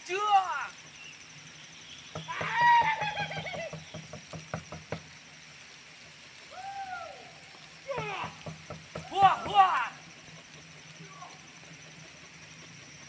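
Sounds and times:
sharp knocks: 2.2s - 5.0s, 7.9s - 9.6s.

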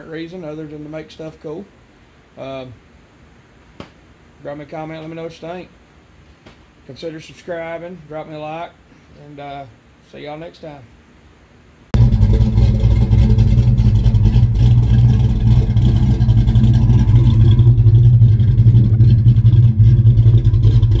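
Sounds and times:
car engine running: 12.0s - 21.0s.

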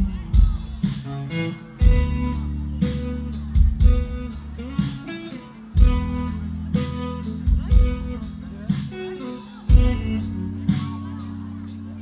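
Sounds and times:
bass guitar: 0.0s - 12.0s
drums with heavy accented hits: 0.0s - 12.0s
electric guitar chords: 0.0s - 12.0s.

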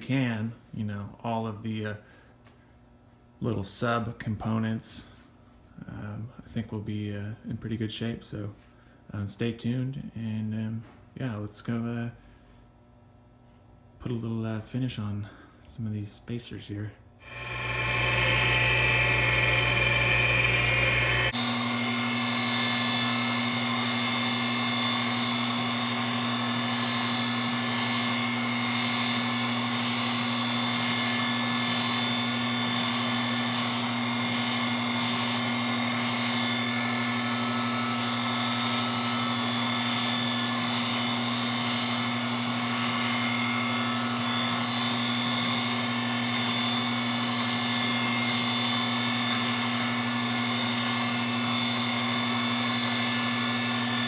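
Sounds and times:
grinding wheel whine on steel: 17.2s - 54.0s
low motor hum: 17.2s - 54.0s.

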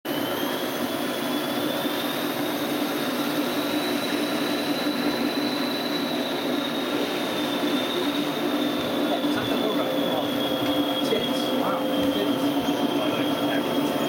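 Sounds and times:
thin high whine: 0.1s - 14.0s.

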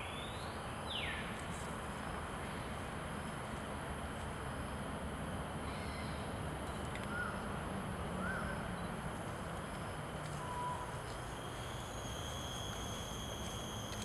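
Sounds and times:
thin high tone: 10.5s - 14.0s.

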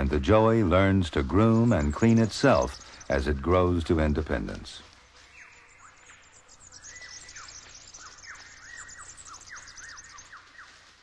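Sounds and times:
birds whistling: 0.6s - 3.9s, 5.2s - 11.0s
faint high chirping: 5.1s - 10.9s.

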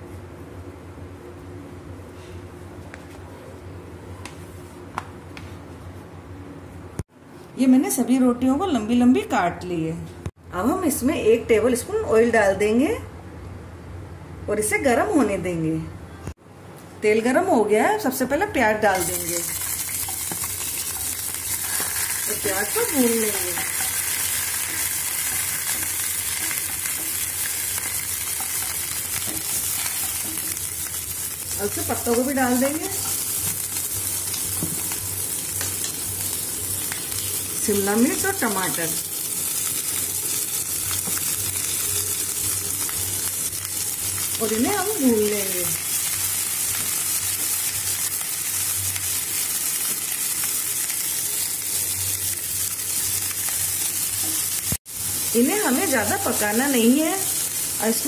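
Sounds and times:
onions sizzling in oil: 18.5s - 58.0s.

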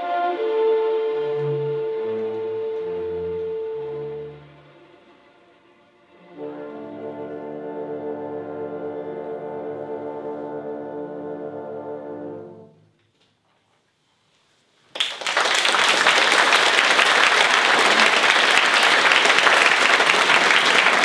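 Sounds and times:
audience applauding: 14.9s - 21.0s.

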